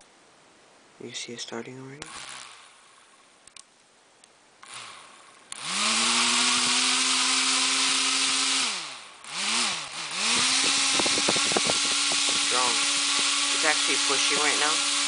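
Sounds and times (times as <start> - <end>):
small electric motor whine: 4.6 - 15.0
propeller air rush: 5.6 - 15.0.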